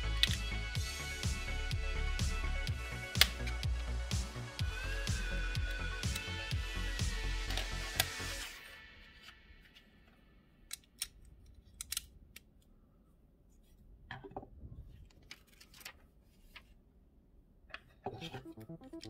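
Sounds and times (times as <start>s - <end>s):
synth music: 0.0s - 8.8s, 18.2s - 19.0s.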